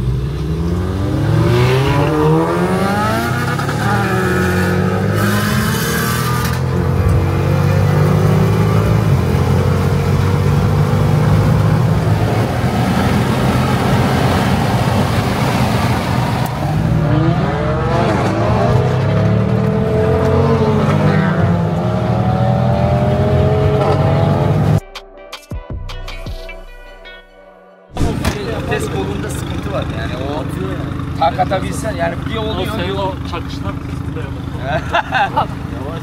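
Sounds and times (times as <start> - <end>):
car engine accelerating: 0.0 - 24.8
wind and road noise: 0.0 - 24.8.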